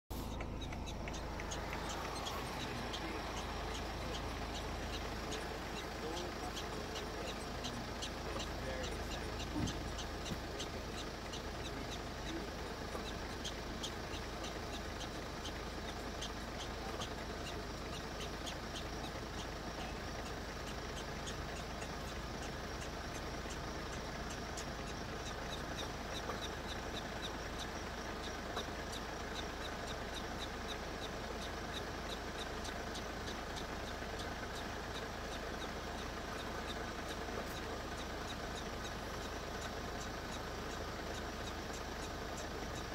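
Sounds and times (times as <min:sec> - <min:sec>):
vehicle engine idling: 0:00.0 - 0:42.9
faint high ticks: 0:00.2 - 0:42.9.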